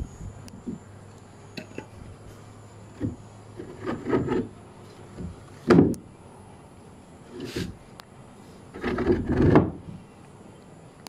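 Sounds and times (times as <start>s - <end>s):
wooden clunk: 5.1s - 6.0s, 8.8s - 9.9s.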